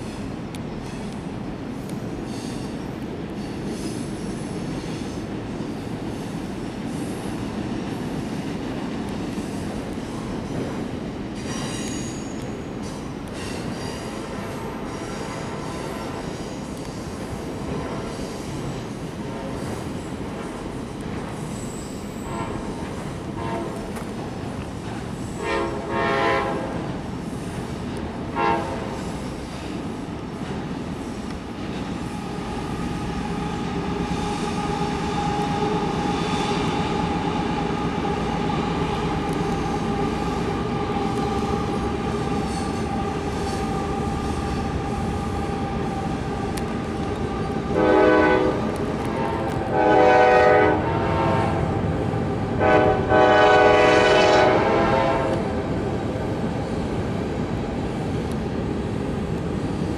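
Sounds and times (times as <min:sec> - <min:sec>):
freight train wheels clattering: 0:00.0 - 0:50.6
wheel squeal: 0:11.4 - 0:12.5
train horn blasts: 0:22.2 - 0:24.0, 0:25.4 - 0:26.9, 0:28.3 - 0:29.0, 0:47.6 - 0:51.8, 0:52.6 - 0:55.6.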